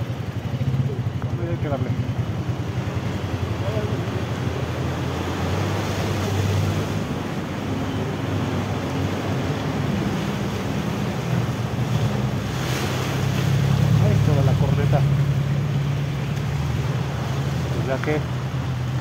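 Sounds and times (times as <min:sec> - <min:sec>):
motorcycle engine running: 0:00.0 - 0:05.3
water rushing and splashing: 0:00.0 - 0:19.0.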